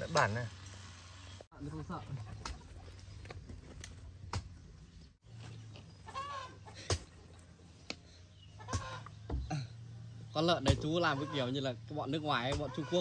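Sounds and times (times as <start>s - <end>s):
chickens clucking: 1.9s - 4.6s, 5.5s - 9.9s, 10.7s - 11.7s, 12.4s - 13.0s.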